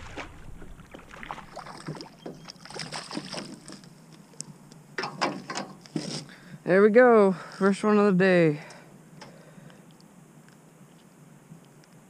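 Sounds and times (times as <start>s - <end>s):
fish splashing at surface: 0.0s - 3.6s.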